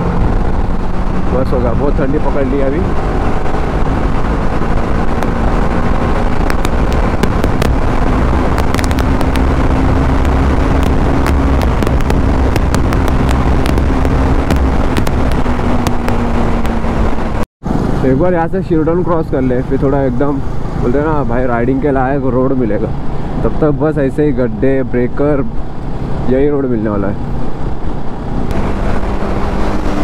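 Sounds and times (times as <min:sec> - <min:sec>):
motorcycle engine droning: 0:00.0 - 0:17.4
wind rushing over microphone: 0:00.0 - 0:24.4, 0:27.0 - 0:30.0
sharp crackles: 0:00.3 - 0:17.4.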